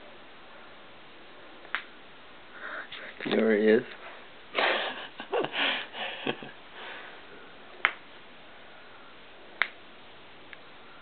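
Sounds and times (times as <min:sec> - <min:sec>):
finger snaps: 0:09.6 - 0:09.8.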